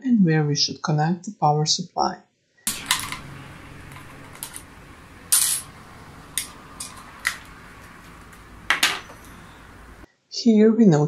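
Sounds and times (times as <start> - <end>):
screwdrivers handled on a tabletop: 2.7 - 5.8, 6.4 - 9.3
small hard clinks: 2.7 - 10.0.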